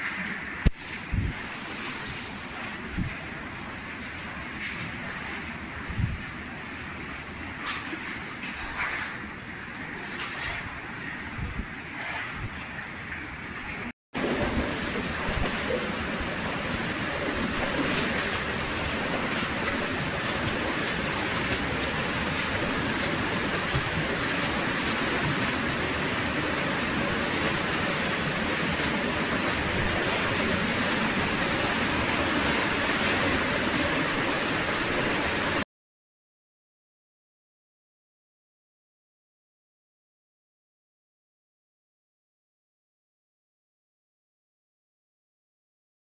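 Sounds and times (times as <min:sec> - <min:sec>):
stream water rushing: 0:13.5 - 0:35.6.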